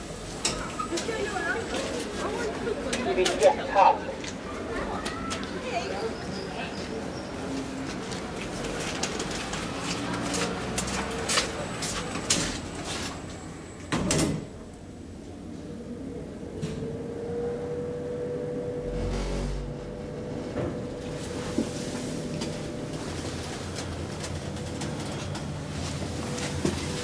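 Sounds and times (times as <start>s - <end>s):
low rumble of elevator travel: 12.1s - 27.0s
elevator doors sliding shut: 13.8s - 14.7s, 16.4s - 27.0s
steady elevator hum: 14.5s - 27.0s.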